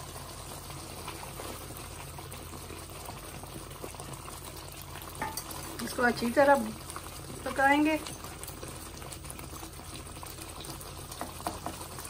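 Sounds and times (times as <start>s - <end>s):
sauce bubbling and sizzling in oil: 0.0s - 12.0s.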